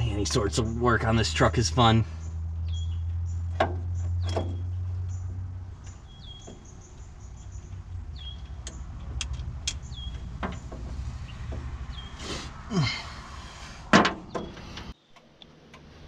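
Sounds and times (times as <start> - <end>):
vehicle engine hum: 0.0 - 16.0
metallic clicks at fuel pump: 8.4 - 10.7.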